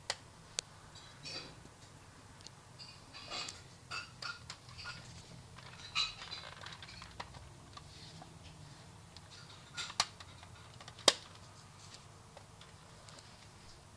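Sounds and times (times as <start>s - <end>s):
plastic toy parts clattering: 4.2s - 7.9s, 9.2s - 11.6s.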